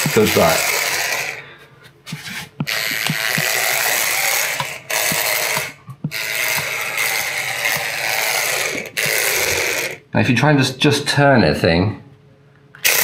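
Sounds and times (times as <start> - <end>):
toy car motor whirring: 0.0 - 1.4, 2.1 - 10.0, 12.8 - 13.0.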